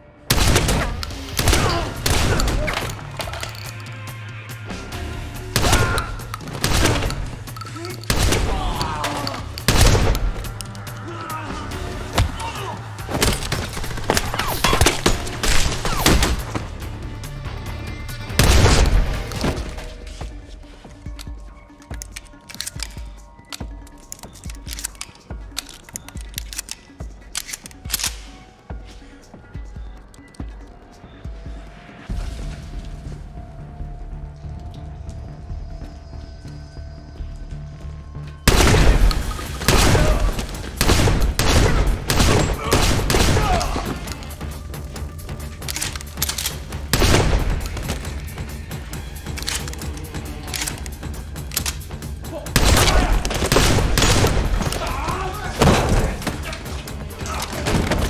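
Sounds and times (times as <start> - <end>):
action music: 0.0 - 58.0
gunshots and impacts: 0.3 - 3.0, 5.5 - 7.5, 8.1 - 10.5, 13.1 - 16.7, 18.4 - 19.8, 38.5 - 44.2, 45.6 - 48.2, 52.6 - 58.0.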